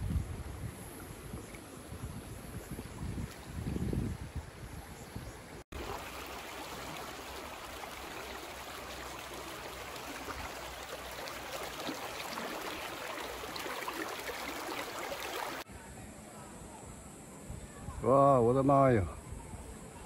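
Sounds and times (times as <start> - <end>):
creek running over rocks: 0.0 - 15.7.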